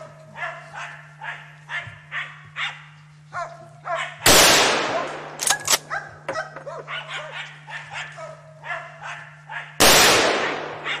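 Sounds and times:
dogs barking and yelping: 0:00.0 - 0:04.2, 0:05.8 - 0:09.8, 0:10.8 - 0:11.0
rifle shot echoing: 0:04.3 - 0:05.9, 0:09.8 - 0:11.0.

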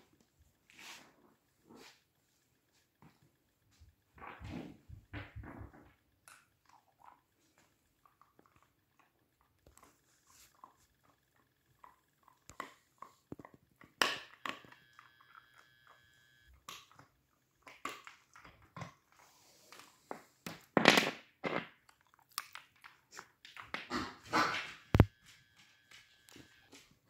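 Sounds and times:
dog chewing and crunching: 0:06.2 - 0:15.5, 0:16.5 - 0:20.1, 0:21.7 - 0:25.0.

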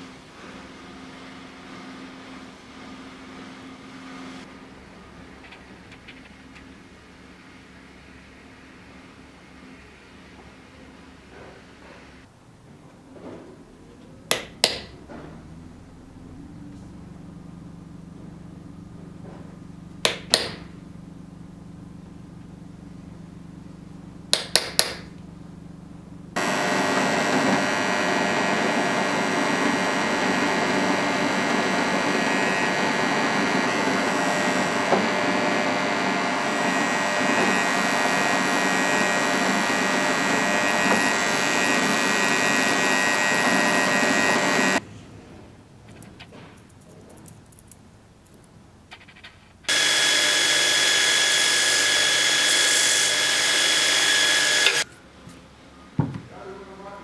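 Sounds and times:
belt grinder whine: 0:14.3 - 0:44.8, 0:49.0 - 0:54.9
drill press drilling steel: 0:20.0 - 0:20.8, 0:26.4 - 0:44.8, 0:49.7 - 0:54.9.

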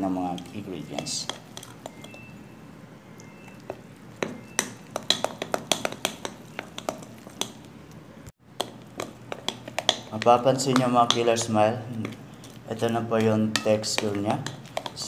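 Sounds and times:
utensil clinking against glass bowl: 0:00.2 - 0:02.4.

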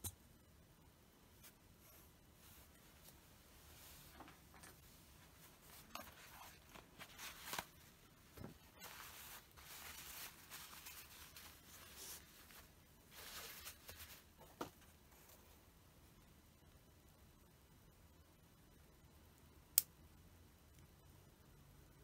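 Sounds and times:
paper tissue rustling: 0:01.4 - 0:15.6.

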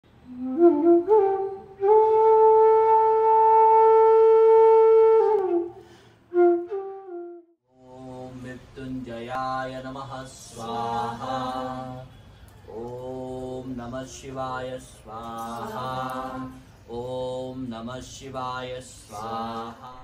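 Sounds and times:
flute melody: 0:00.2 - 0:07.6
low group chanting: 0:07.7 - 0:20.0.

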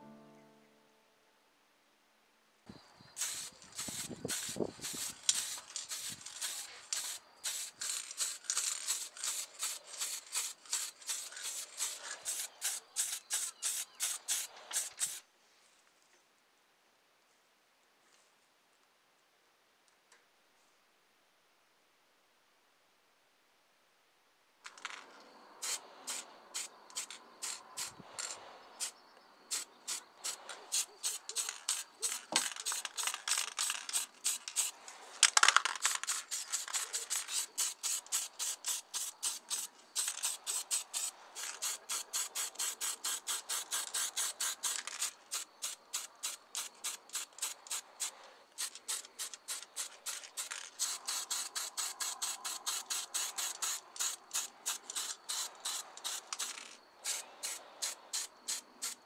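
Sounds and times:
spray paint can puffs: 0:03.2 - 0:15.2, 0:24.6 - 0:59.0.

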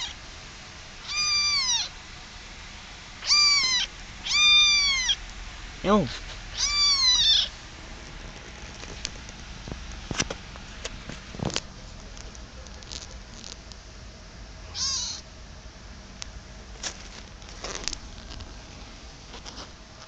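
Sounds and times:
kitten meowing: 0:01.0 - 0:01.9, 0:03.2 - 0:05.2, 0:06.5 - 0:07.5, 0:14.7 - 0:15.2.

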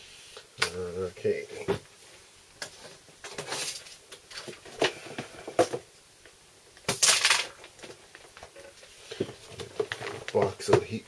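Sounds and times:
items knocking and clicking: 0:02.6 - 0:05.9, 0:06.8 - 0:11.0
plastic bag rustling: 0:07.0 - 0:10.7.

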